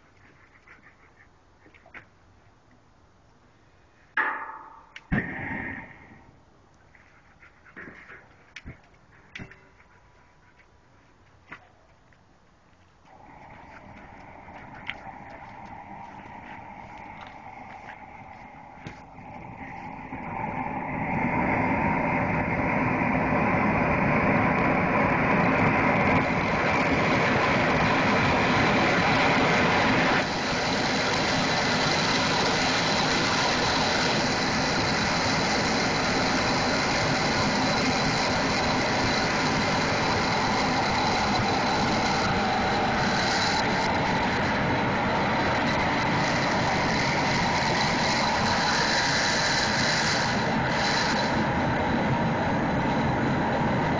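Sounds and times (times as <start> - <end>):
gas burners roaring: 13.0 - 53.9.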